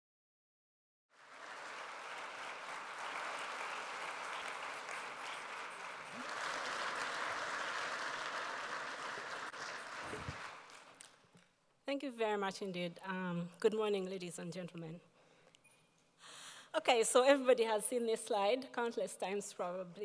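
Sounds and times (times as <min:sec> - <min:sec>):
audience applauding: 0:01.1 - 0:11.3.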